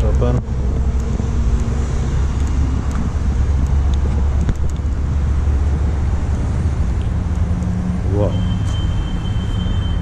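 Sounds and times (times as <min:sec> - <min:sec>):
wind buffeting microphone: 0:00.0 - 0:07.9
traffic noise: 0:00.0 - 0:10.0.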